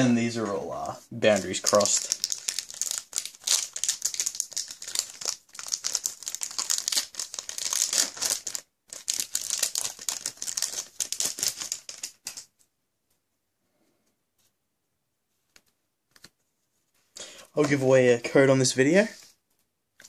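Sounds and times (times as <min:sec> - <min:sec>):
foil wrapper crinkling and tearing: 0:01.2 - 0:12.5.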